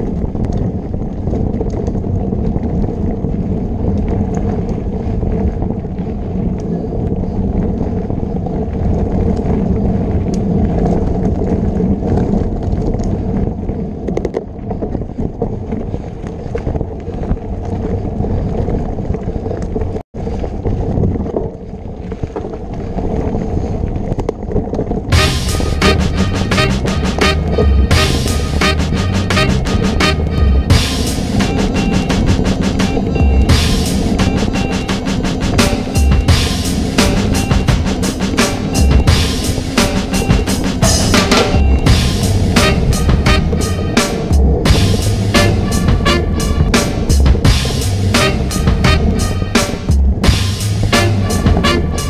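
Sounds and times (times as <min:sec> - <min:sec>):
bike rattling clicks: 0:00.0 - 0:25.2
bike tyre noise: 0:00.0 - 0:52.0
wind rushing over microphone: 0:00.0 - 0:52.0
music: 0:25.1 - 0:52.0.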